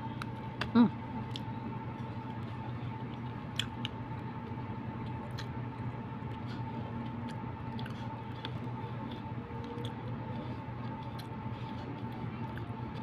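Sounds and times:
background hum with high tone: 0.0 - 13.0
person chewing: 1.2 - 2.4, 3.0 - 4.0, 5.0 - 5.6, 6.2 - 13.0.

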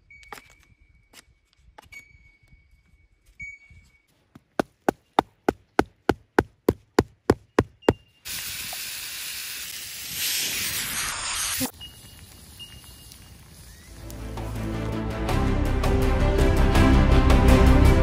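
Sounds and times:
steady hiss: 8.3 - 14.6.

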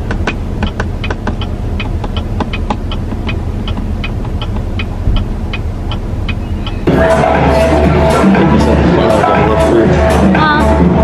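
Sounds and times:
engine and road hum: 0.0 - 11.0
turn signal ticking: 0.0 - 11.0.

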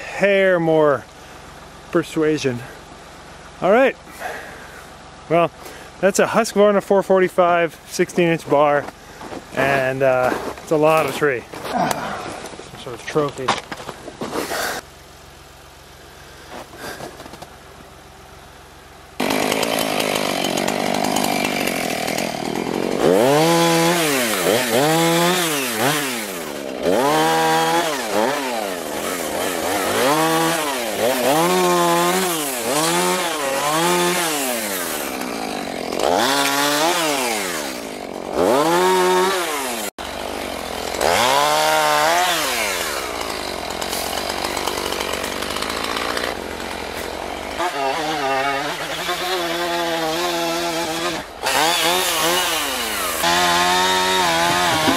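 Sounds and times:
chainsaw revving: 19.2 - 54.9.

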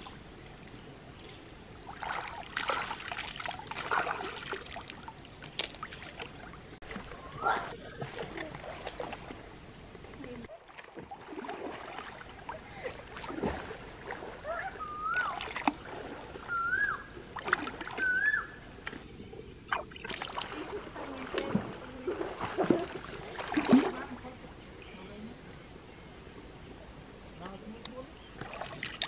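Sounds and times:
hands splashing in stream water: 1.9 - 7.1, 19.7 - 24.2
short wavering whistles: 14.8 - 15.4, 16.5 - 17.1, 18.0 - 18.6.

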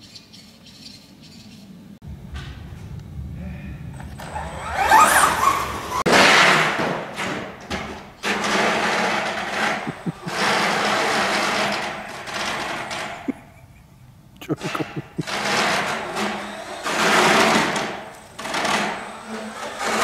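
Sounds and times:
electric motor whining: 9.6 - 12.8.

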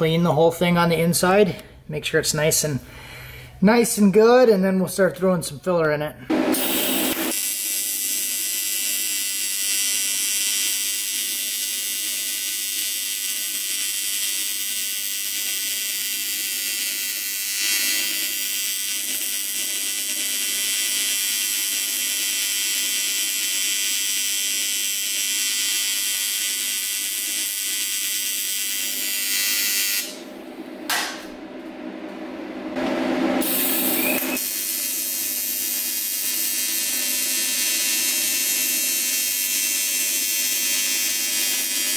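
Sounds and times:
welding arc buzzing: 6.3 - 30.4, 32.8 - 41.9.

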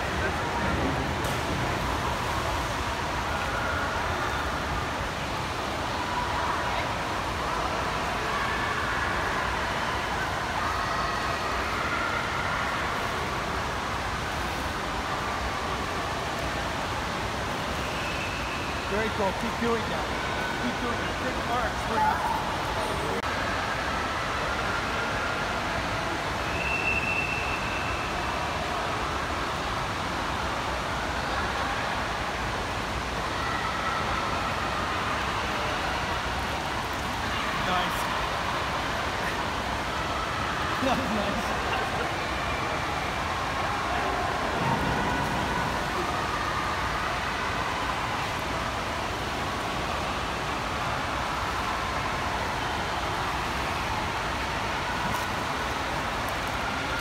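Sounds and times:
indoor pool hall background noise: 0.0 - 57.0.

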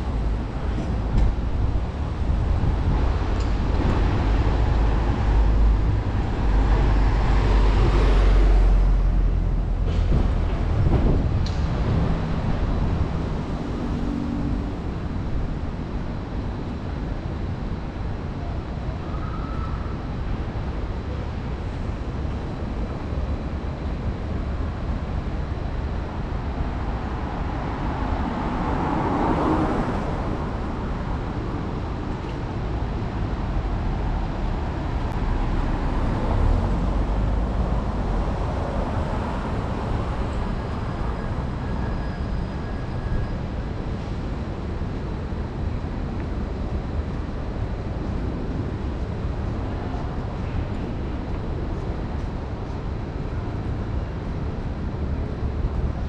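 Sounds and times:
cars passing: 0.0 - 17.0, 26.2 - 56.0
steady low rumble: 0.0 - 18.5.

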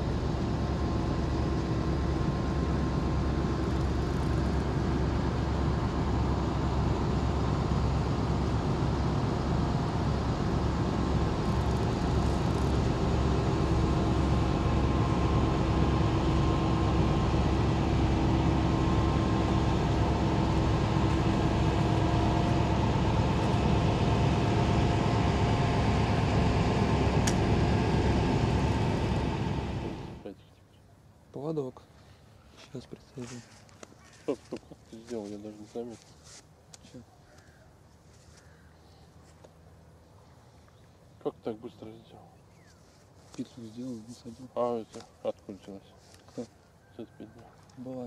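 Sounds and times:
boat diesel engine drone: 0.0 - 30.4.

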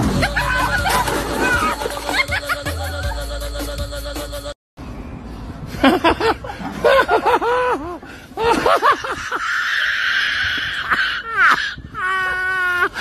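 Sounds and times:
people laughing: 0.0 - 3.7, 5.8 - 9.5
high-pitched squeal of laughter: 0.1 - 3.2, 7.0 - 13.0.

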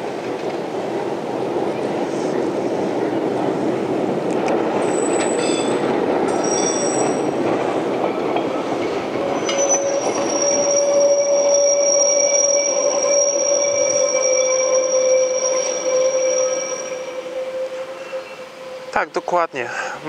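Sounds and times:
tram wheels rumbling on rail: 0.0 - 20.0
tram wheel squeal: 4.7 - 20.0.

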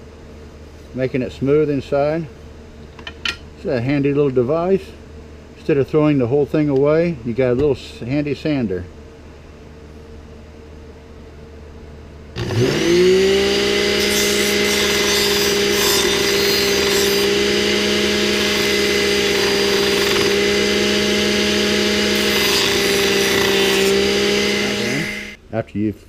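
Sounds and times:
blender motor whining: 12.4 - 25.4.

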